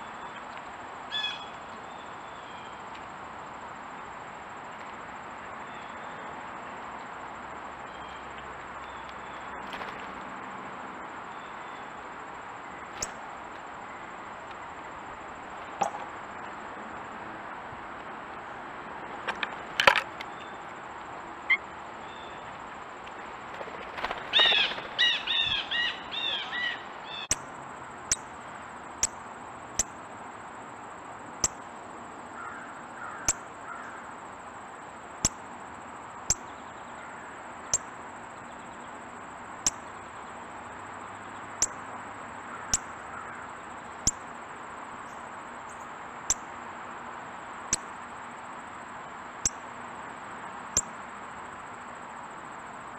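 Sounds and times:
harsh crow calls: 32.3 - 34.2, 42.5 - 43.5.

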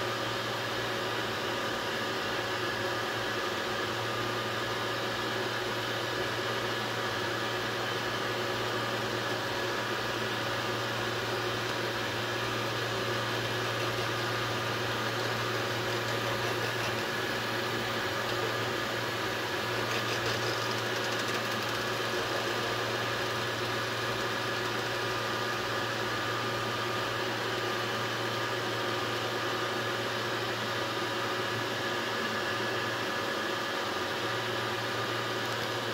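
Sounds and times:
three-d printer humming: 0.8 - 28.4.

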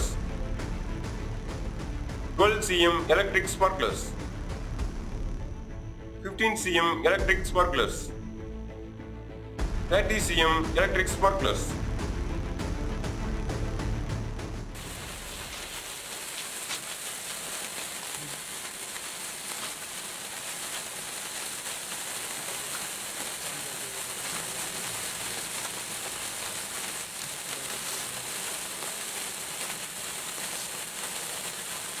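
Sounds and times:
sparkler fizzing and crackling: 14.8 - 32.0.

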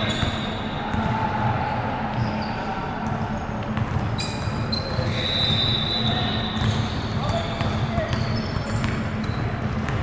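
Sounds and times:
shoe squeaks: 0.0 - 0.8, 4.2 - 9.6
ball bouncing on hard court: 0.0 - 1.6, 3.0 - 5.2, 6.5 - 10.0.

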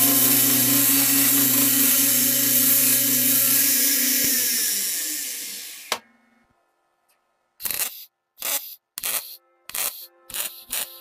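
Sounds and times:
belt sander grinding steel: 0.0 - 5.9.

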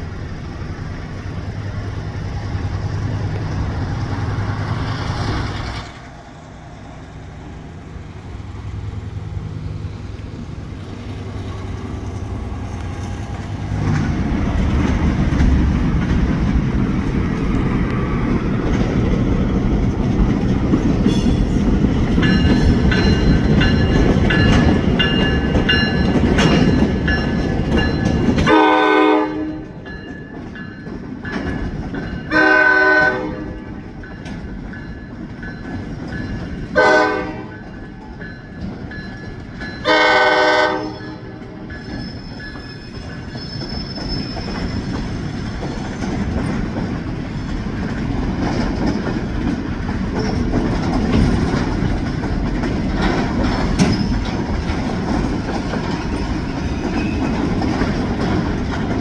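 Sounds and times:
freight cars rumbling past: 0.0 - 59.0
train horn blasts: 28.4 - 29.8, 32.3 - 33.8, 36.8 - 37.6, 39.8 - 41.4.

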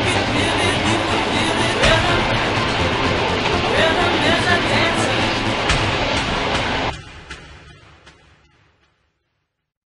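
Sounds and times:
dance music: 0.0 - 7.0.

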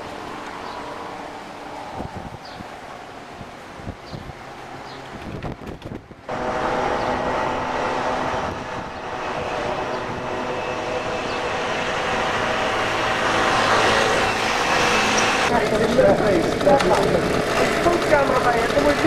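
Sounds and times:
vehicle engine droning: 4.4 - 19.0.

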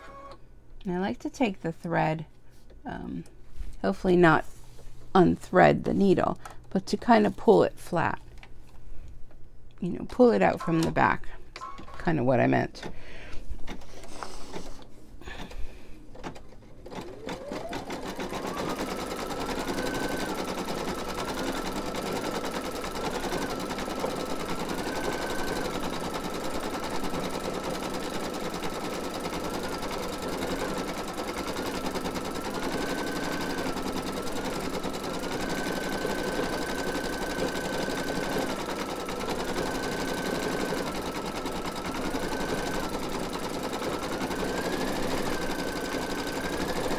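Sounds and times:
embroidery machine stitching: 16.2 - 46.9.

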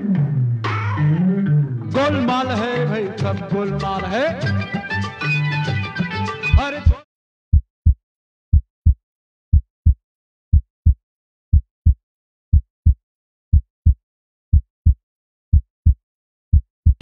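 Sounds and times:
heartbeat thumps: 6.5 - 17.0.

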